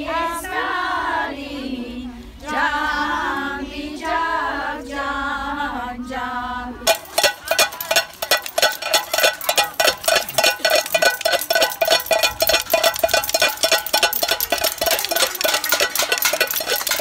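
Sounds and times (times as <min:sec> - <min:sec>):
spoons banging metal pots: 0:06.9 - 0:17.0.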